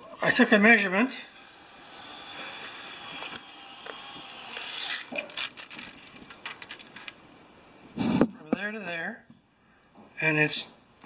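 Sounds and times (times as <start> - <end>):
tape measure being pulled out: 2.5 - 7.2
light clicks and rattles: 5.2 - 7.2.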